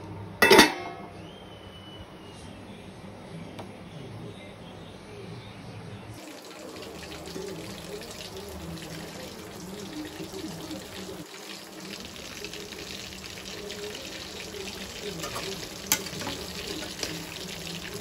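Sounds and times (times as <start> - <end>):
curry simmering and sizzling in pot: 6.2 - 18.0.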